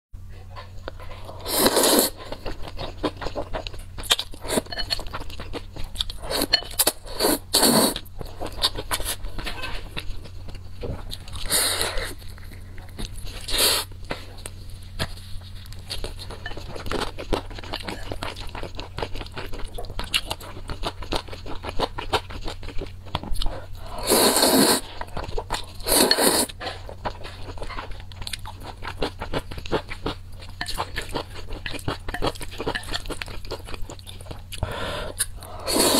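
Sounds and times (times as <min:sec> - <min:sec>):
person chewing: 0:00.8 - 0:35.9
noodle slurps: 0:24.0 - 0:24.9, 0:35.6 - 0:35.9.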